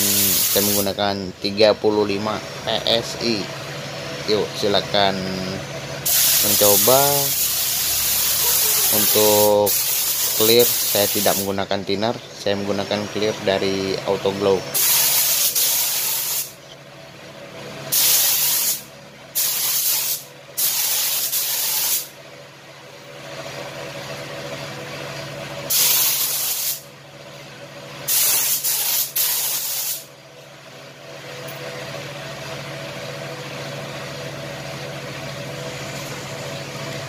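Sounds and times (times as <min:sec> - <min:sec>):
spray gun hissing air: 0:00.0 - 0:01.0, 0:06.0 - 0:11.6, 0:14.8 - 0:16.6, 0:17.9 - 0:22.1, 0:25.7 - 0:26.8, 0:28.1 - 0:30.1
steady machine hum: 0:00.0 - 0:37.0.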